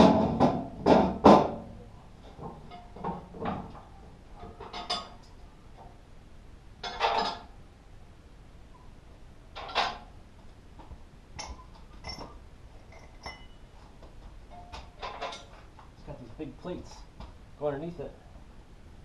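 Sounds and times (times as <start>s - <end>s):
metal parts clanking: 4.4s - 5.2s, 6.8s - 7.5s, 9.6s - 10.1s, 11.4s - 13.6s, 14.5s - 15.6s.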